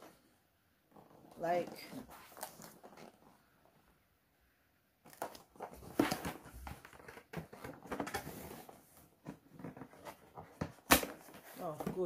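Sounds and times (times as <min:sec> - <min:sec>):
cardboard rustling and scraping: 0:00.9 - 0:03.5, 0:05.1 - 0:12.0.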